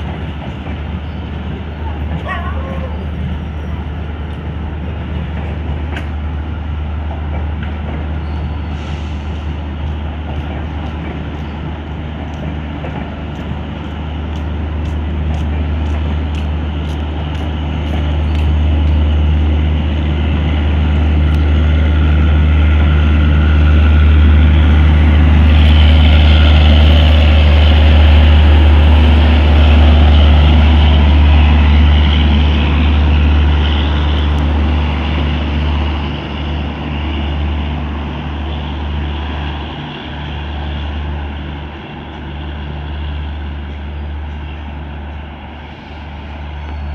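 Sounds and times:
train wheels clicking over rail joints: 4.2 - 23.0.

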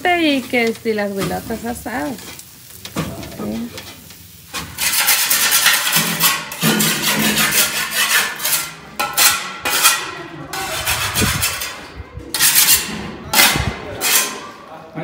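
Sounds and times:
rough scraping strokes: 4.5 - 14.5.

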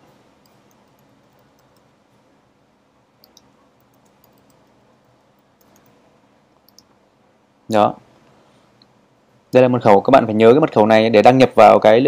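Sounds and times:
keyboard and mouse clicks: 0.4 - 2.0, 3.2 - 4.8, 5.4 - 6.0, 6.6 - 7.0.

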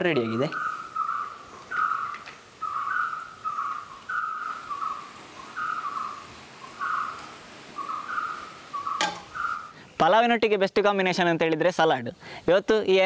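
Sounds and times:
bird whistling calls: 0.2 - 9.8.

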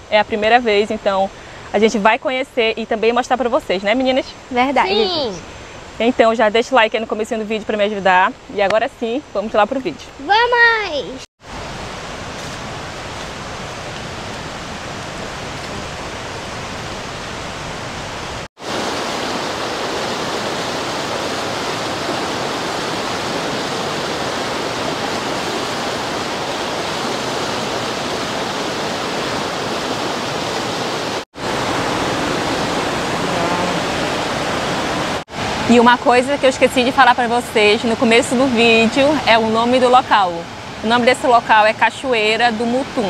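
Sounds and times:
water rushing over rock: 11.4 - 35.8.

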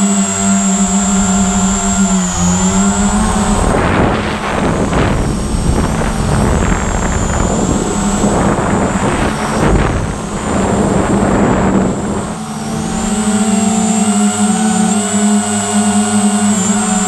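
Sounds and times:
drone motors humming and whining: 0.0 - 17.0
wind rush on microphone: 0.0 - 17.0.

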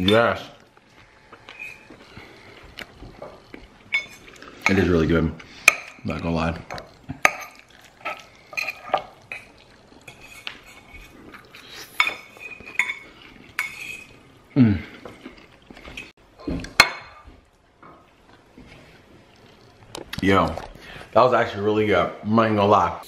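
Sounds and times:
metal forks clinking on ceramic bowls: 3.9 - 4.9, 6.7 - 11.2, 12.0 - 14.2.

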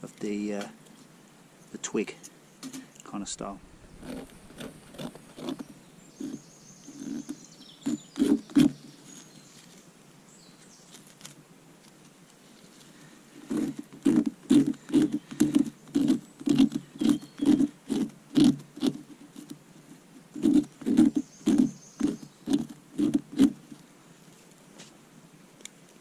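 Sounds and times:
folding knife cutting bark: 3.9 - 9.8, 10.8 - 23.9.

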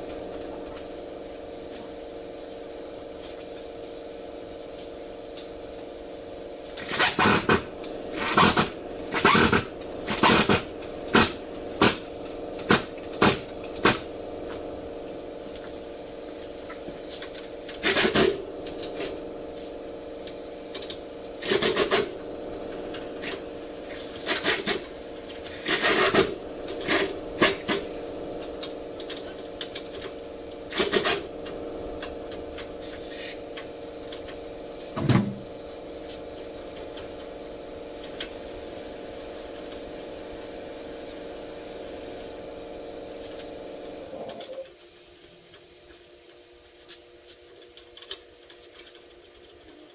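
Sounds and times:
steady shop hum: 0.0 - 49.9
pneumatic air wrench bursts: 6.2 - 14.0, 16.2 - 18.4, 20.4 - 22.1, 23.2 - 27.8, 29.1 - 31.3, 32.7 - 34.2.

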